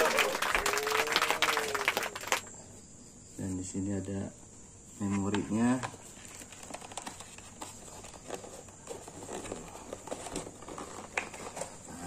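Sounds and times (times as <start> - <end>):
cardboard rustling: 5.1 - 12.0.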